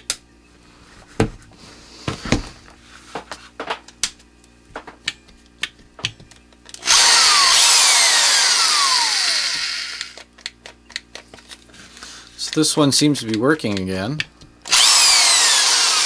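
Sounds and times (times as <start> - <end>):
handling knocks and clicks: 3.1 - 6.8, 10.2 - 11.8, 12.4 - 14.6
electric drill motor running: 6.8 - 10.2, 14.6 - 16.0.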